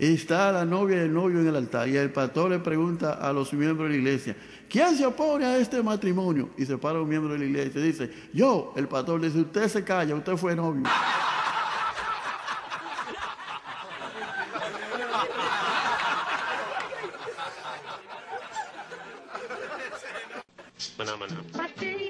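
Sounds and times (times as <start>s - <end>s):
crowd laughing: 10.8s - 20.8s.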